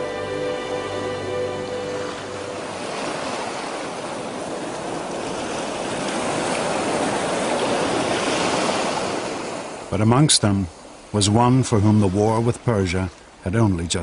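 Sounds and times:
held music chord: 0.0 - 3.8
sea waves breaking on beach: 0.0 - 14.0.

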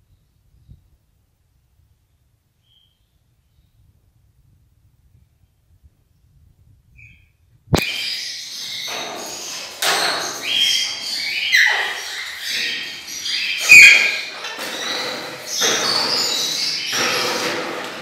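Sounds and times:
parakeets chattering and chirping: 7.8 - 17.7.

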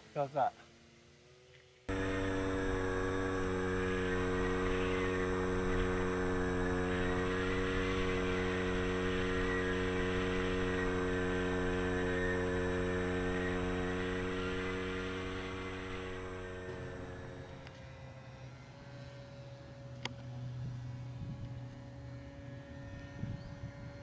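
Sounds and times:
electric motor and propeller whine: 0.0 - 24.0
wind noise on microphone: 20.6 - 24.0.

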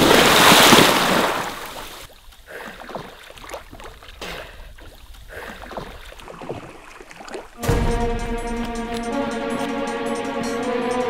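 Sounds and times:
small splashes and lapping: 0.0 - 7.6
lake water churning: 0.0 - 9.1.

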